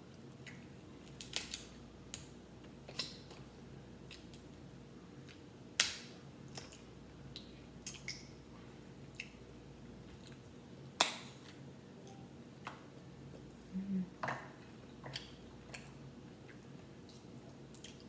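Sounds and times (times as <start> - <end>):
crab shells cracking: 1.0 - 2.3.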